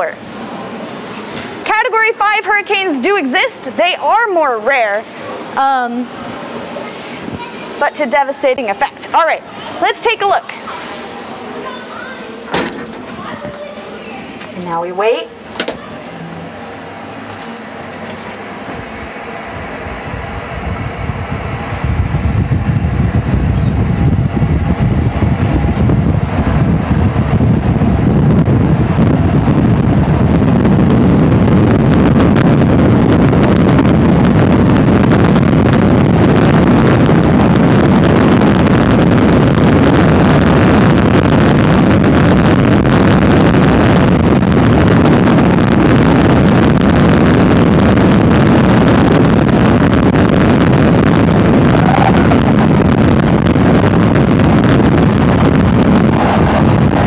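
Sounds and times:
rushing wind from simulator: 0:00.0 - 0:57.0.

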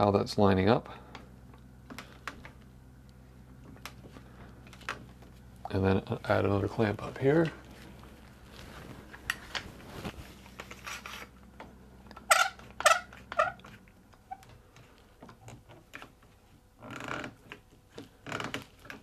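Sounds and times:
short squeaky sounds: 0:12.2 - 0:13.7.

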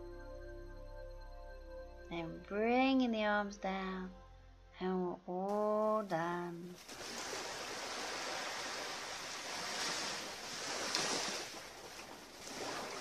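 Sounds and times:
small waves lapping on shore: 0:06.7 - 0:13.0.

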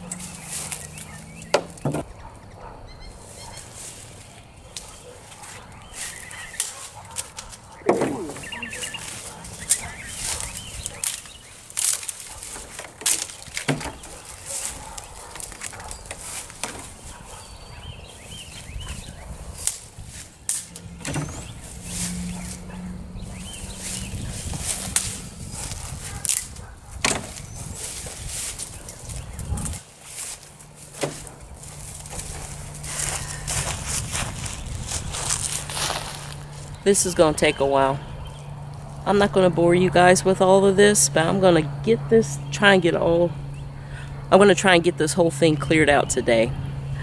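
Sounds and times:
dry stems crackling and snapping: 0:00.0 - 0:02.1, 0:03.6 - 0:17.4, 0:19.4 - 0:37.5
bird calling: 0:00.0 - 0:16.4, 0:20.7 - 0:33.8.

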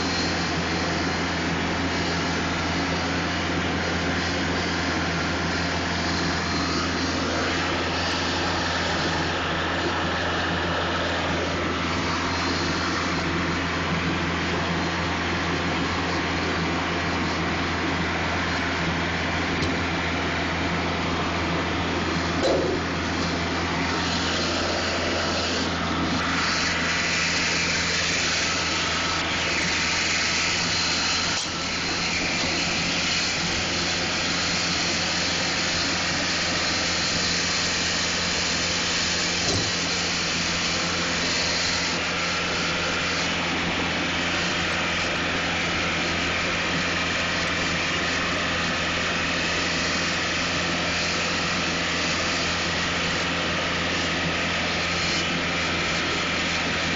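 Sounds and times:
mower noise: 0:00.0 - 0:56.9
tractor diesel engine running: 0:00.0 - 0:56.9.

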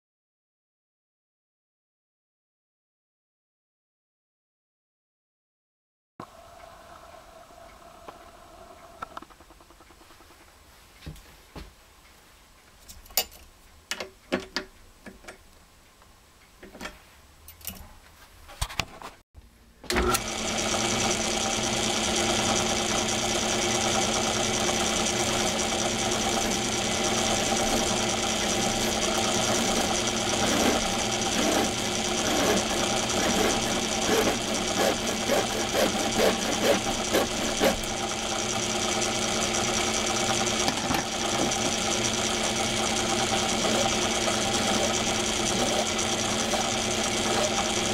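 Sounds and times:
metal lathe whining: 0:19.9 - 0:47.9
hand file rasping on metal: 0:26.3 - 0:37.9.

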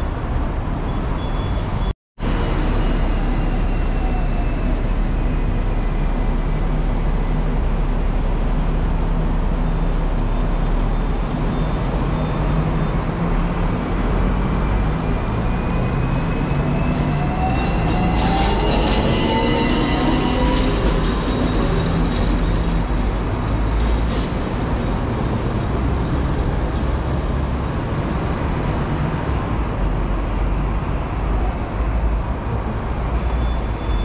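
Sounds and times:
electric tram rumbling on rails: 0:00.0 - 0:34.0
tram motor whine: 0:14.7 - 0:22.9.

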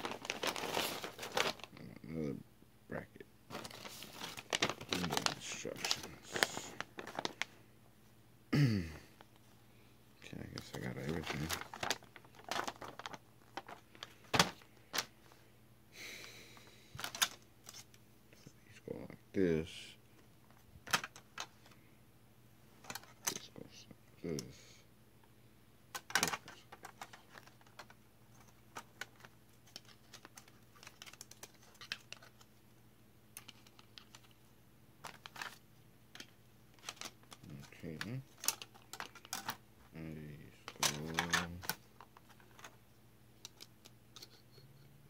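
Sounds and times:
paper rustling: 0:00.0 - 0:01.7, 0:03.5 - 0:07.6, 0:10.5 - 0:15.4, 0:26.0 - 0:32.6, 0:35.0 - 0:35.6, 0:36.2 - 0:39.6
plastic pieces clicking together: 0:25.9 - 0:27.9.

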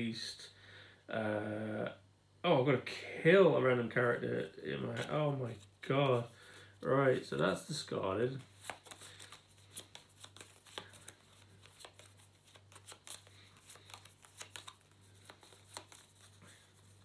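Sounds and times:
low steady hum: 0:00.0 - 0:17.0
cards clicking and snapping: 0:08.4 - 0:16.3.

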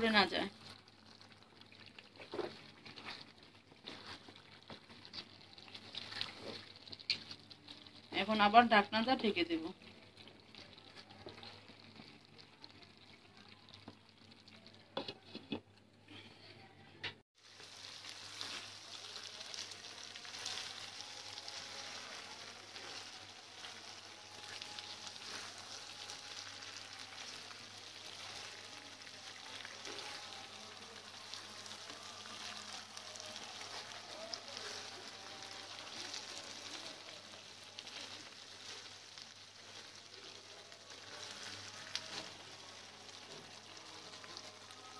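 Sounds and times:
meat sizzling in a pan: 0:17.4 - 0:44.9.

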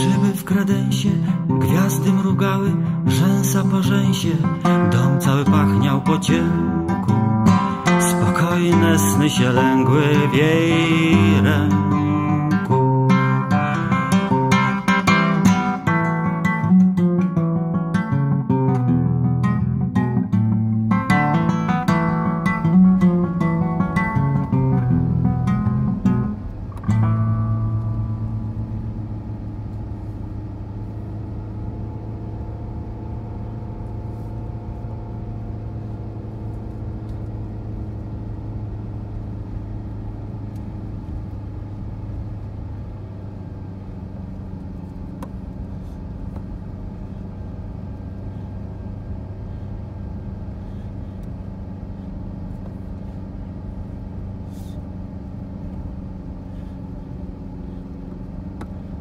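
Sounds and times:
car engine hum: 0:00.0 - 0:59.0
tyre and road noise: 0:19.6 - 0:59.0.

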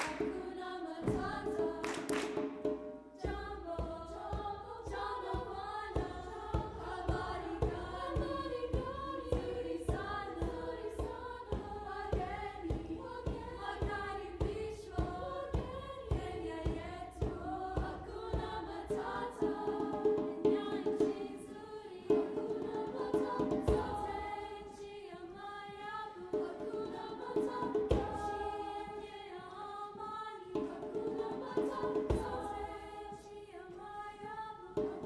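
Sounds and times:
steady percussive beat: 0:00.0 - 0:24.7, 0:30.5 - 0:33.1
women's chorus singing: 0:00.0 - 0:35.0.

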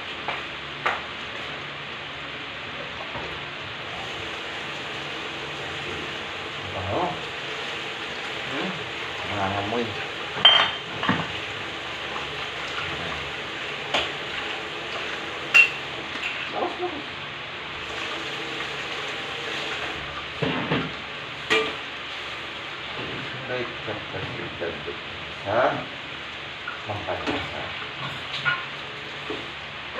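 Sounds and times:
meat sizzling in a pan: 0:03.7 - 0:23.0.

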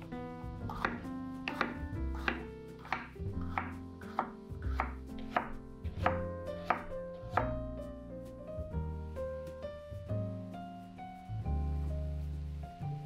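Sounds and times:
background music: 0:00.0 - 0:13.0
knife slicing on wooden board: 0:00.7 - 0:07.5.

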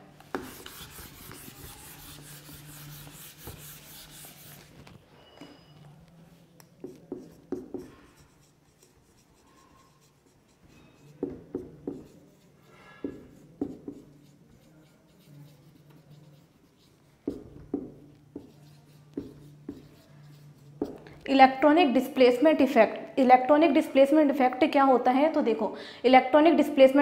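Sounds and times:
marker writing on whiteboard: 0:00.2 - 0:04.8, 0:06.6 - 0:21.3.

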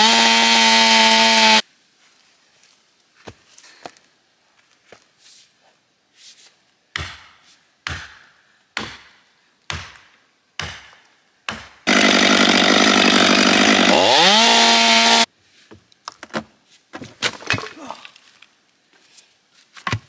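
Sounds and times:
chainsaw sawing log: 0:00.0 - 0:01.6, 0:11.8 - 0:15.3.

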